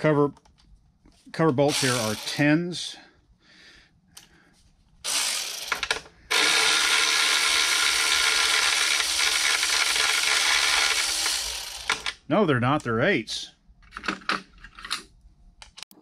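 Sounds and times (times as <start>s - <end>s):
electric ratchet whirring: 1.7s - 2.5s, 5.0s - 12.2s.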